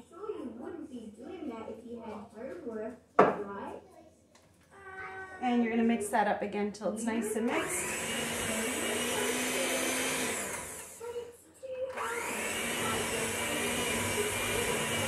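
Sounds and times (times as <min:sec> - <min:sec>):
electric hand mixer whipping: 0:07.3 - 0:11.2, 0:11.9 - 0:15.0.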